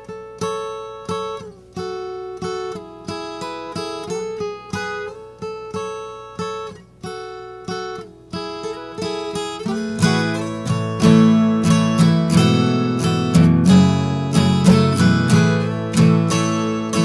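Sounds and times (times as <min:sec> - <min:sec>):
acoustic guitar strumming chords: 0:00.0 - 0:17.0.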